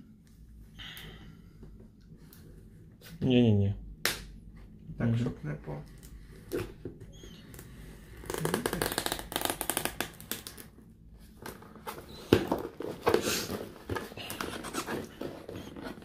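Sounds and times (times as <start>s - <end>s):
knife cutting packing tape: 8.2s - 10.6s
cardboard box scraping and handling: 11.9s - 16.0s.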